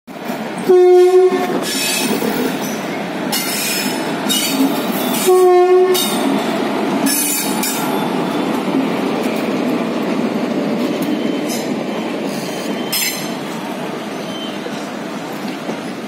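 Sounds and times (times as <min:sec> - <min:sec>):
train wheels on rails: 0:00.1 - 0:16.0
electric locomotive horn blasts: 0:00.6 - 0:01.8, 0:04.3 - 0:06.3.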